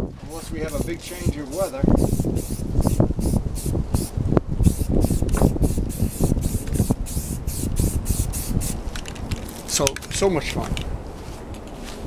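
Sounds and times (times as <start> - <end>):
wind buffeting microphone: 0.0 - 12.0
aerosol can spraying hisses: 0.7 - 8.8.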